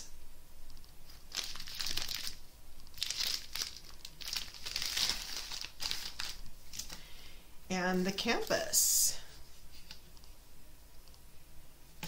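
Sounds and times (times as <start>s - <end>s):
plastic wrapping crinkling: 0.8s - 7.0s.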